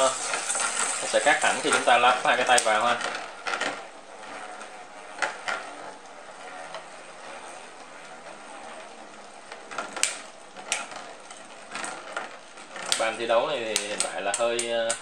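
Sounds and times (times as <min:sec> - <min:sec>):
spinning tops clacking: 0:00.0 - 0:03.8, 0:09.7 - 0:15.0
spinning tops whirring: 0:00.0 - 0:15.0.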